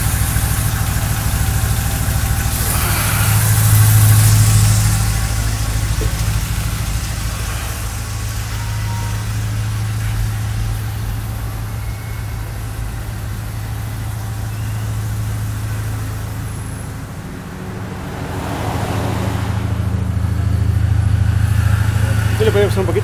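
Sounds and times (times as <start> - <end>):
car engine idling: 0.0 - 23.0.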